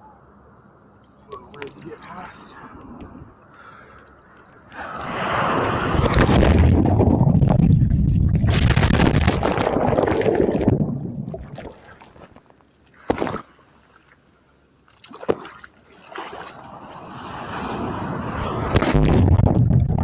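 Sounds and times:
water splashes: 0:04.3 - 0:12.3, 0:12.9 - 0:20.0.

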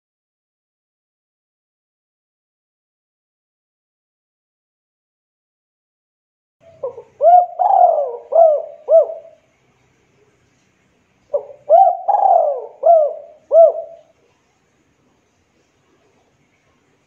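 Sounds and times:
dove cooing: 0:06.7 - 0:09.4, 0:11.3 - 0:14.2.

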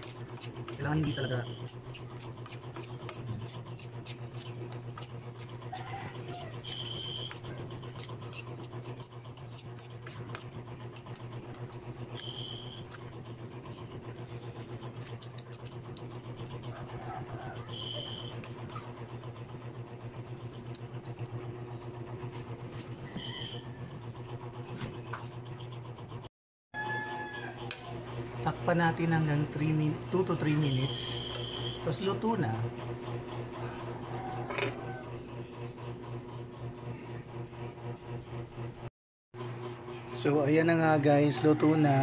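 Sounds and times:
metal spoon scraping a wok: 0:00.0 - 0:05.6, 0:07.8 - 0:13.1
low mechanical hum: 0:00.0 - 0:42.0.

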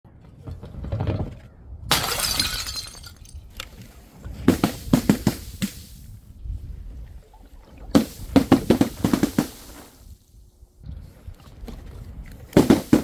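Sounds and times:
glass bottle shattering: 0:01.9 - 0:03.5.

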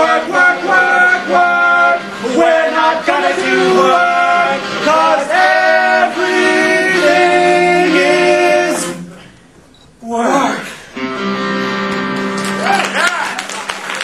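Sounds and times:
mixed group singing: 0:00.0 - 0:09.2.

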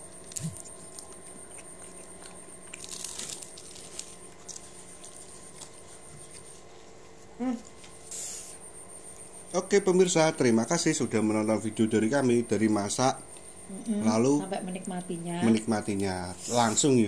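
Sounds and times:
chewing crisp fried food: 0:00.0 - 0:08.4.

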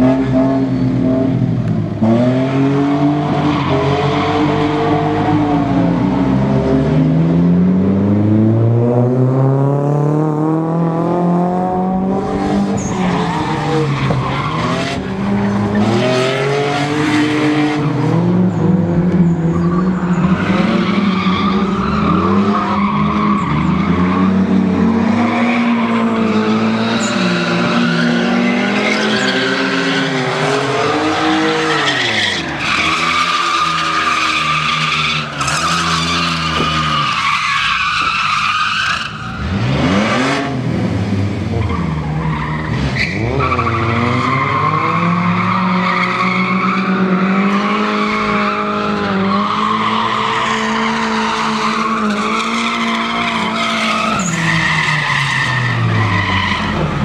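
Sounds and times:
tires squealing: 0:02.0 - 0:06.6, 0:11.8 - 0:40.6, 0:41.5 - 0:57.0
pickup engine at high revs: 0:39.3 - 0:57.0.

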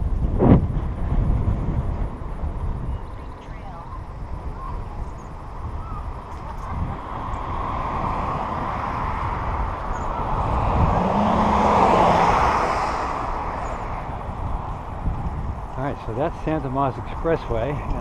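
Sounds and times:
expressway traffic: 0:00.0 - 0:18.0
vehicle passing: 0:06.2 - 0:17.5.

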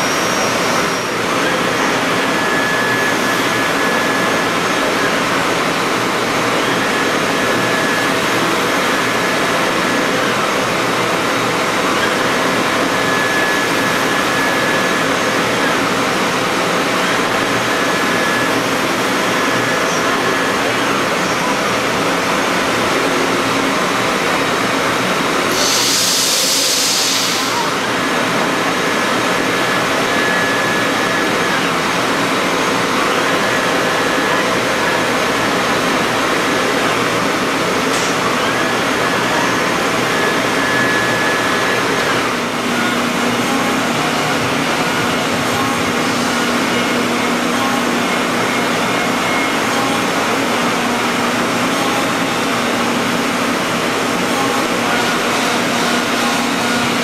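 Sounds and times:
burst of hiss: 0:25.5 - 0:27.6.

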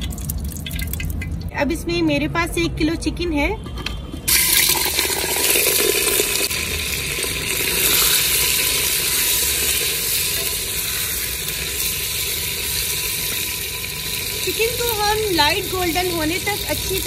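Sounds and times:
chicken sizzling in hot oil: 0:04.3 - 0:17.0.

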